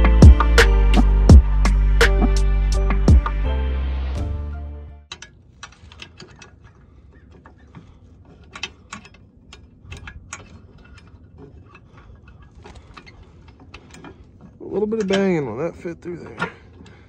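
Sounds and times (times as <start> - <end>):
metal rod clicking and tapping: 14.8 - 15.4.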